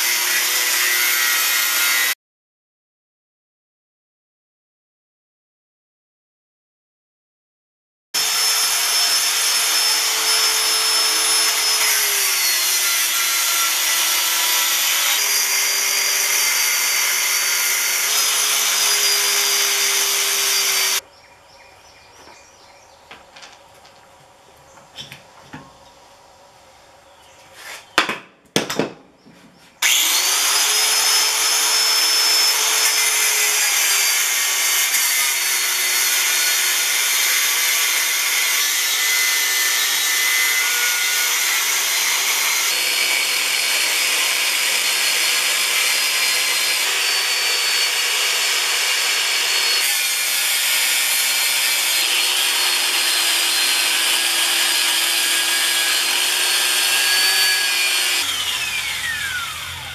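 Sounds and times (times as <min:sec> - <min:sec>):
angle grinder cutting steel: 0:00.0 - 0:02.2, 0:08.2 - 0:21.0, 0:29.8 - 0:59.9.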